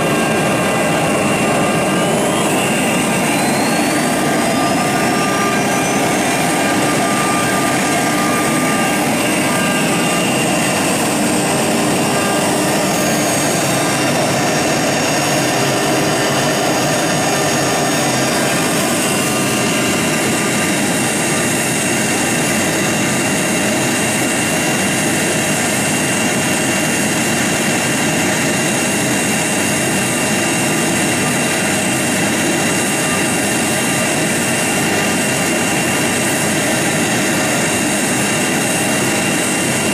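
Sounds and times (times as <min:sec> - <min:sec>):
router bit cutting wood hiss: 0:00.0 - 0:25.8
wood router whining: 0:00.0 - 0:39.9.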